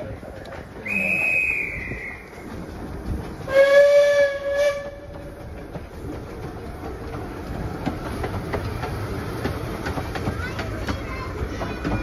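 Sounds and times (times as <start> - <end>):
train rumbling past: 0.0 - 12.0
wheels clicking over rail joints: 0.0 - 12.0
steam whistle: 3.5 - 5.0.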